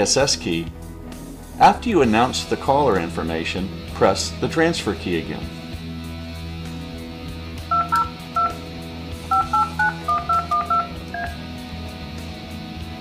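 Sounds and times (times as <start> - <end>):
background music: 0.0 - 13.0
phone touch tone beeps: 7.7 - 8.6, 9.3 - 11.4.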